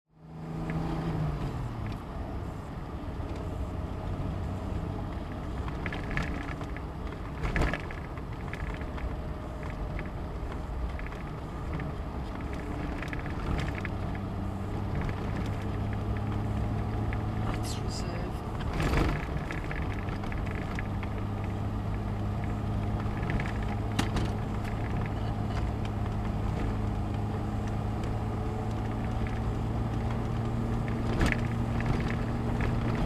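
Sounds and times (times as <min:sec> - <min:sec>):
road noise: 0:00.1 - 0:33.0
car engine running: 0:00.2 - 0:33.0
knocks and rattles: 0:22.4 - 0:26.8, 0:28.7 - 0:33.0.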